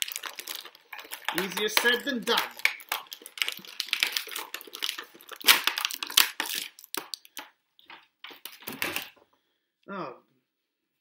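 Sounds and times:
plastic packaging crackling: 0.0s - 9.2s.

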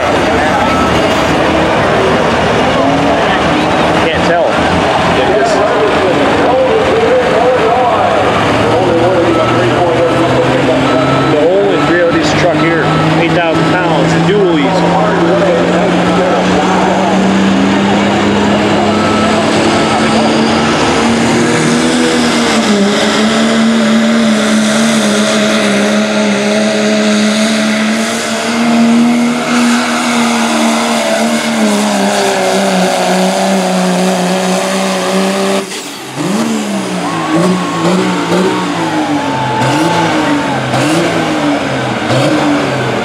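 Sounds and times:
diesel engine at full throttle: 0.0s - 43.0s
engine revving: 0.0s - 43.0s.

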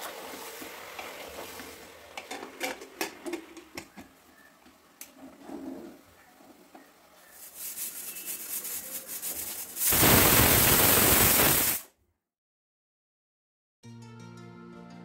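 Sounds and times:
pressure cooker whistling: 7.3s - 11.8s.

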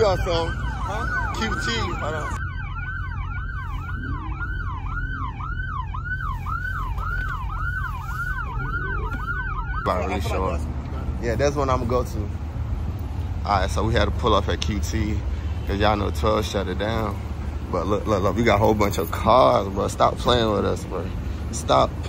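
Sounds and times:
voices: 0.0s - 2.4s, 8.4s - 22.0s
police siren yelping: 0.0s - 10.7s
engine and traffic rumble: 0.0s - 22.0s.

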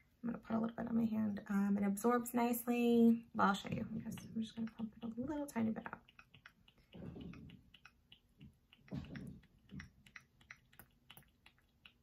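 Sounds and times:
soft low thumps: 3.6s - 6.0s.

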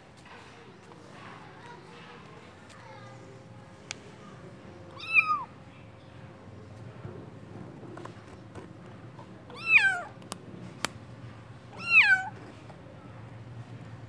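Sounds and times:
kitten meowing: 5.0s - 5.5s, 9.5s - 10.1s, 11.8s - 12.4s.

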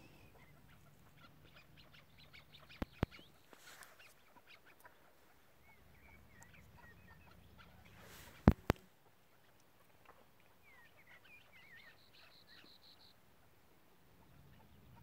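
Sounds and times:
partridge clucking: 8.2s - 8.8s.

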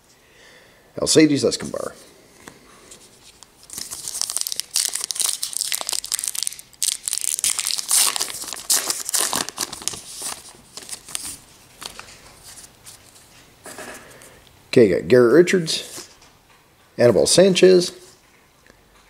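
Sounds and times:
wrapper crinkling and tearing: 3.2s - 12.2s.

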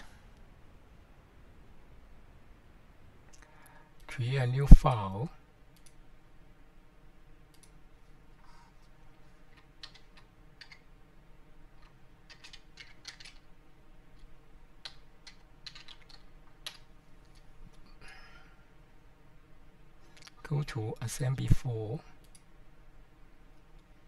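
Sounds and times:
typing on computer keyboard: 9.5s - 10.8s, 11.8s - 13.4s, 14.8s - 17.4s.

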